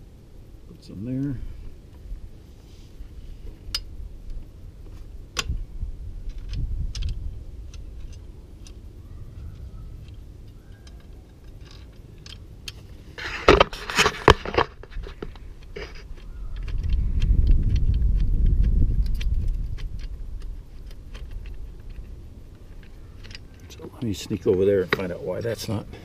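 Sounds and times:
tools clattering and rustling: 10.0 - 16.8.

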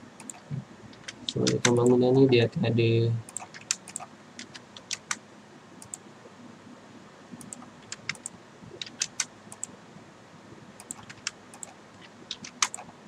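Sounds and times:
keyboard clicks: 0.2 - 2.4, 3.3 - 5.2, 5.8 - 6.0, 7.4 - 9.7, 10.8 - 12.9
mouse clicks: 3.3 - 5.2, 5.8 - 6.0, 10.8 - 12.8.

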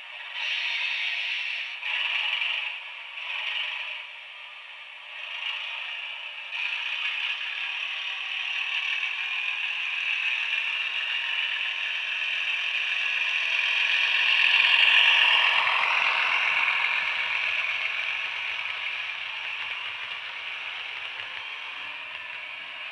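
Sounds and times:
diesel engine sound from small speaker: 0.0 - 22.9
model train running on track: 0.0 - 22.9.

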